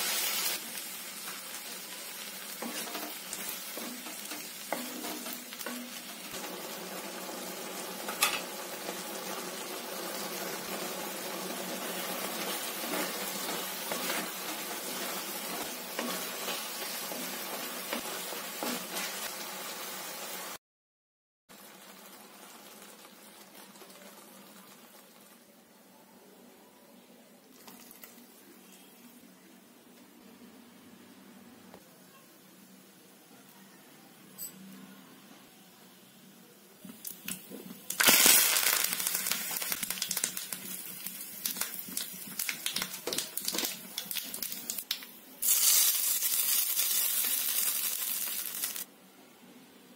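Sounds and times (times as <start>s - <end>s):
vegetables sizzling in oil: 0.0s - 20.6s, 21.5s - 25.7s, 36.8s - 48.9s
mustard seeds popping in oil: 36.8s - 48.9s.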